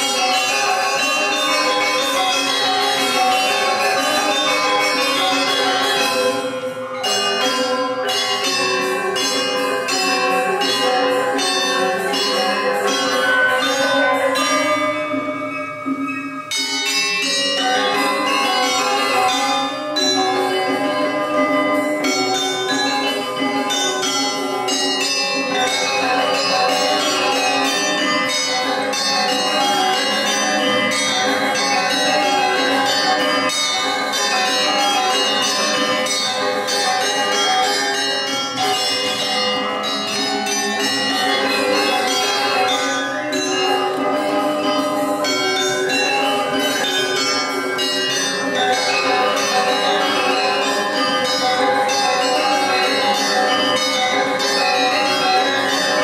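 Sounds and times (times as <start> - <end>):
gamelan metallophones ringing: 0.0 - 56.0.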